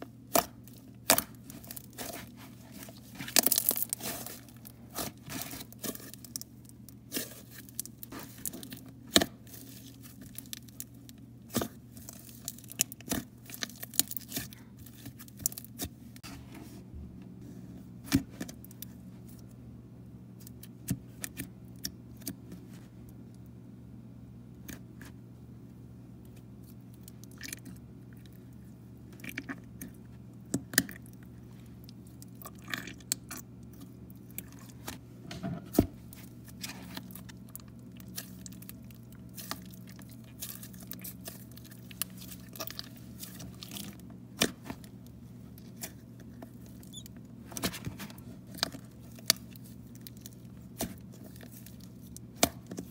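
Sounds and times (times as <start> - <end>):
steady low hum: 0.0 - 52.9
slime squishing and crackling: 0.1 - 16.0, 35.9 - 52.9.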